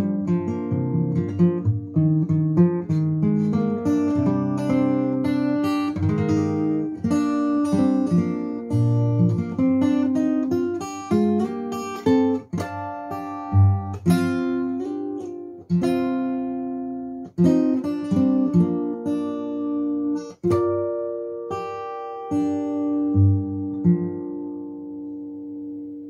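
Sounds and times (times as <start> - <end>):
acoustic guitar picking: 0.0 - 26.0.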